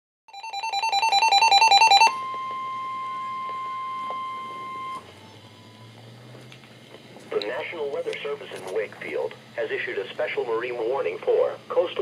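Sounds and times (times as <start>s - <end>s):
two-pitch alert beeping: 0.3s - 5.7s
steady warning alarm tone: 0.3s - 6.0s
faint hum: 0.4s - 12.0s.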